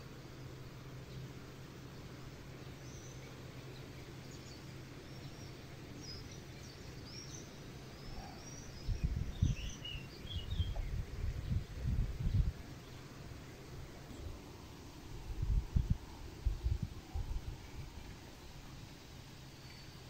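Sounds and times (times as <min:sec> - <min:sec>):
small birds chirping: 0:00.3 - 0:20.0
wind buffeting microphone: 0:08.1 - 0:12.8, 0:15.1 - 0:18.2.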